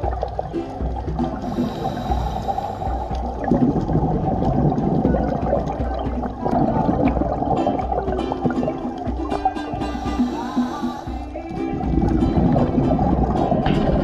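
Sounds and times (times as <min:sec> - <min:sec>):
exhaled bubbles bubbling: 0:00.0 - 0:14.0
regulator inhale hiss: 0:01.4 - 0:03.5, 0:09.8 - 0:11.4.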